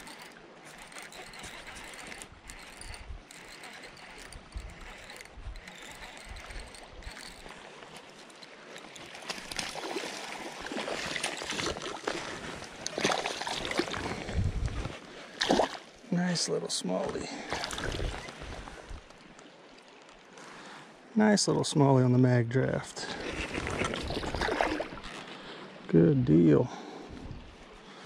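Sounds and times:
creek water running: 0:00.0 - 0:20.7.

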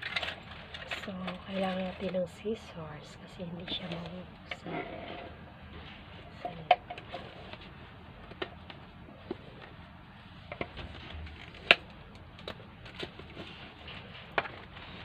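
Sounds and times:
handling crackles: 0:05.7 - 0:15.0.

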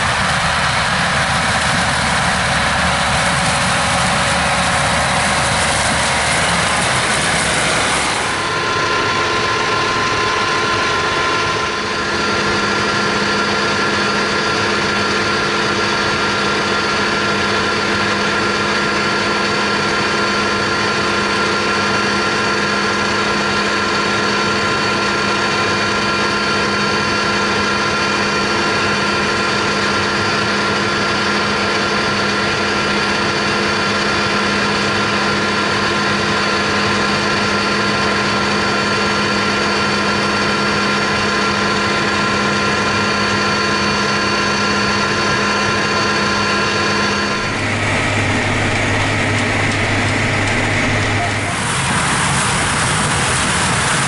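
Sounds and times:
steady machine hum: 0:00.0 - 0:54.0.

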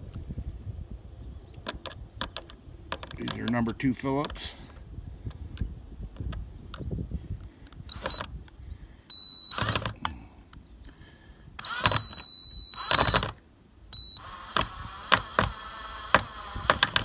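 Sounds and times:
cordless drill whining: 0:07.7 - 0:08.3, 0:09.1 - 0:10.2, 0:11.6 - 0:13.4, 0:14.0 - 0:17.0.

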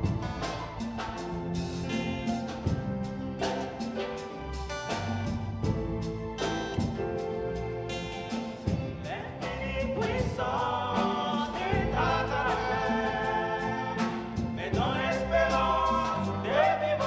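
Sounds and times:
backing voices singing: 0:00.0 - 0:03.9, 0:08.8 - 0:17.0
drum kit beat: 0:00.0 - 0:17.0
electric guitar: 0:00.0 - 0:17.0.

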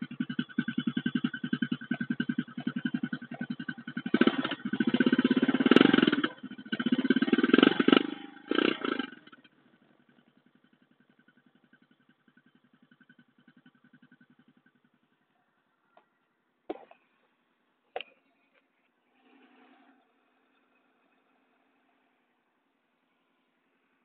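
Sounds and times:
motorcycle engine revving and idling: 0:00.0 - 0:17.4.

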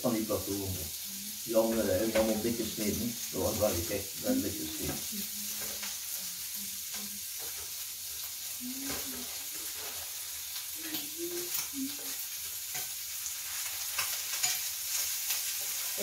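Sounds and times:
food sizzling on grill plate: 0:00.0 - 0:16.0
tongs clicking against plate: 0:13.7 - 0:15.4.

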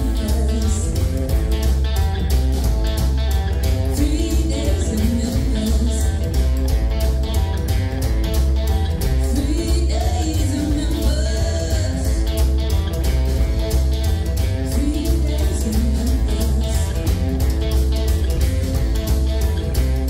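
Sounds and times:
woman singing: 0:00.0 - 0:01.4, 0:03.9 - 0:06.5, 0:09.2 - 0:12.6, 0:14.6 - 0:17.2
rockabilly band playing live: 0:00.0 - 0:20.0.

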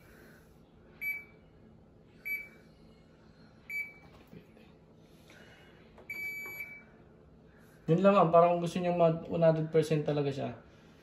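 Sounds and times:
washer control panel beeps: 0:01.0 - 0:01.3, 0:02.2 - 0:02.5, 0:03.7 - 0:04.1, 0:06.1 - 0:06.9.

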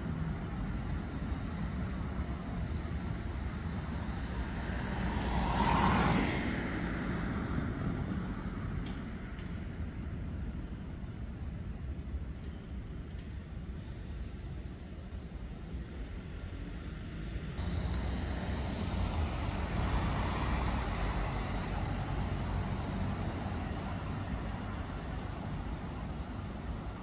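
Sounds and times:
road traffic hum: 0:00.0 - 0:27.0
car passing close: 0:04.4 - 0:07.4, 0:17.4 - 0:27.0.

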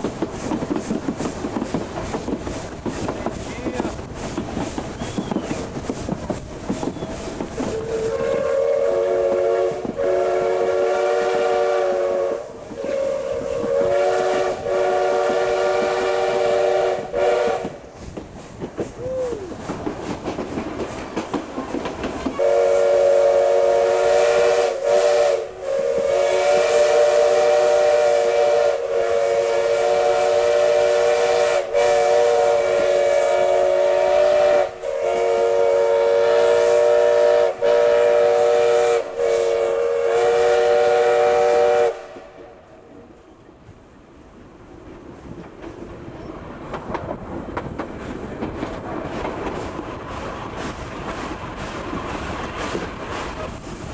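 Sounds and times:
steam locomotive whistle blasts: 0:06.8 - 0:17.9, 0:22.3 - 0:42.6.

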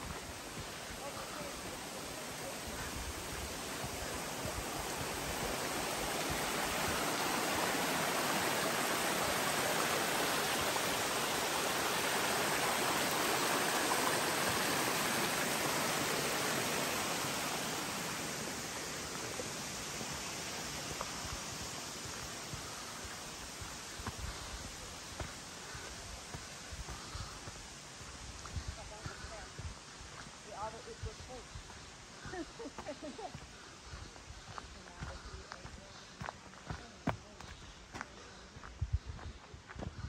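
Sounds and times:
stream rushing over rocks: 0:00.0 - 0:29.0.

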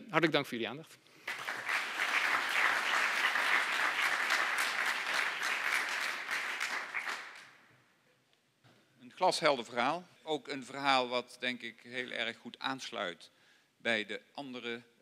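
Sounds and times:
audience applauding: 0:01.2 - 0:07.6.

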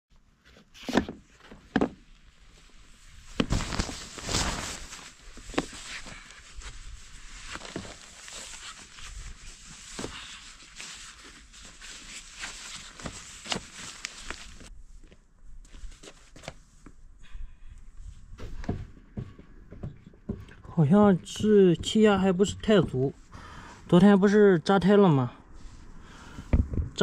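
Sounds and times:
fabric and clothing rustling: 0:02.3 - 0:17.1, 0:17.9 - 0:23.9
shoes knocking on wooden boards: 0:18.4 - 0:23.2.

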